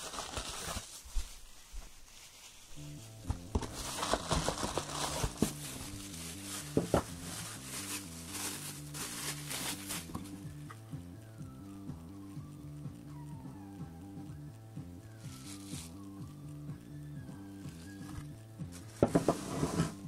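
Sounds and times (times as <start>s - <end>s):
plastic wrapping crinkling: 0.0s - 10.7s, 15.2s - 16.1s
background music: 2.8s - 20.0s.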